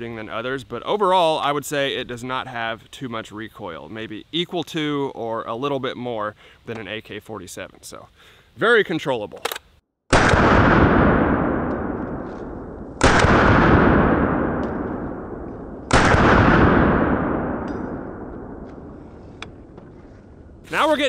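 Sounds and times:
rifle shots: 10.1 - 19.0.

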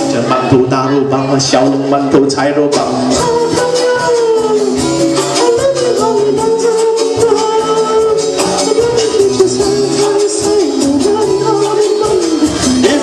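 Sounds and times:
steady bass pattern: 0.0 - 13.0
upbeat song: 0.0 - 13.0
wavering melody line: 2.8 - 13.0.

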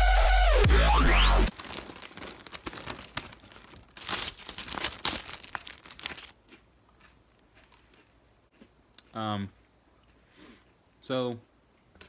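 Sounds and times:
plastic packaging crinkling: 1.5 - 7.1.

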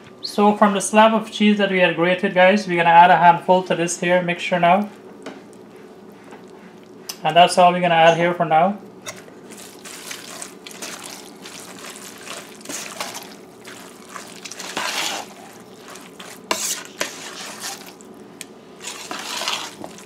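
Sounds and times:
spoon stirring thick mixture: 9.0 - 20.0.

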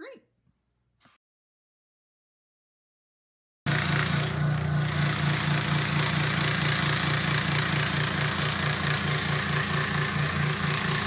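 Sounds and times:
woodworking machine motor hum: 3.7 - 11.0.

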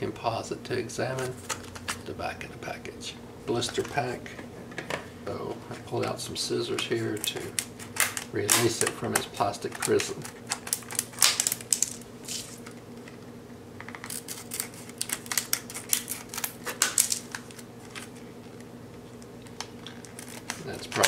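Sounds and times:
steady low hum: 0.0 - 21.0
scissors cutting plastic: 7.1 - 12.6, 13.9 - 18.1, 19.8 - 21.0.

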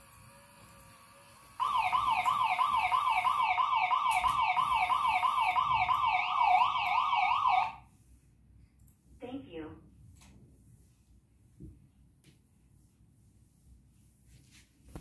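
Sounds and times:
electronic siren wail: 1.6 - 7.8.

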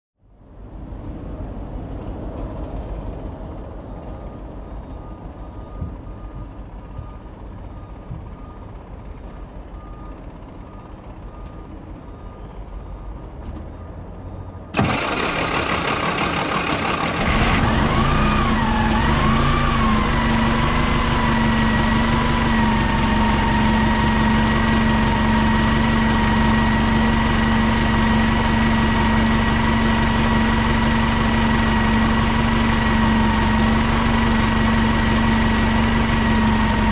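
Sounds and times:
bus engine idling: 4.1 - 36.9
starter cranking: 14.8 - 20.4
steady whine: 14.8 - 36.9.

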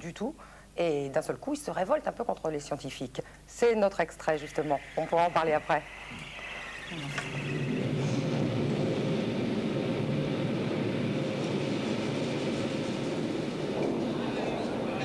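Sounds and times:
faint held hum: 0.0 - 15.0
low mechanical rumble: 4.1 - 15.0.

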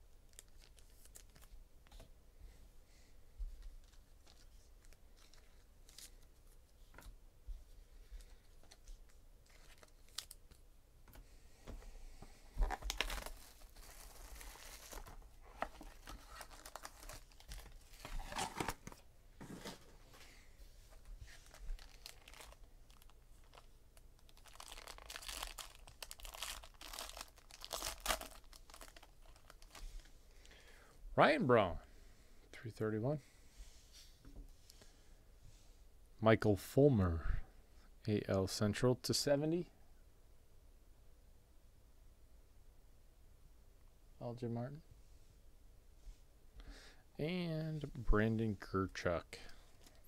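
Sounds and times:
foil pack crinkling and tearing: 0.3 - 1.5, 12.6 - 19.0, 21.3 - 29.8.

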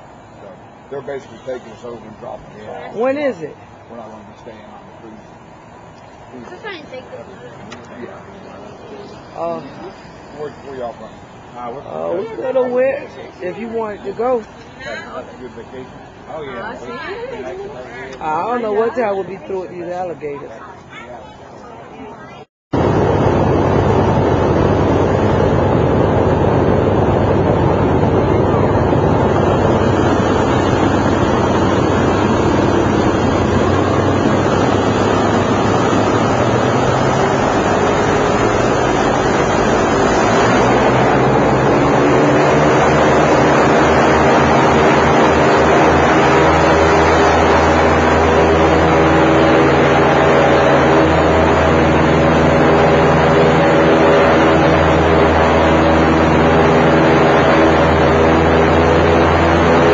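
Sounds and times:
airboat engine and propeller: 0.0 - 59.9
wind buffeting microphone: 22.8 - 59.9.

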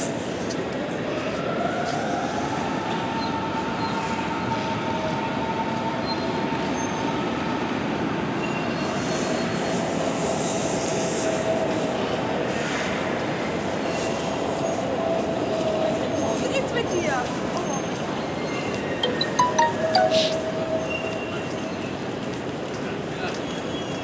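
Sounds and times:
high-pitched train whine: 17.5 - 22.2.

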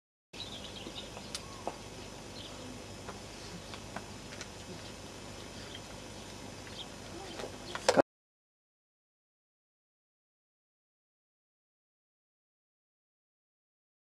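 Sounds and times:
faint chirps: 0.4 - 8.0
outdoor ambience hiss: 0.4 - 8.0.

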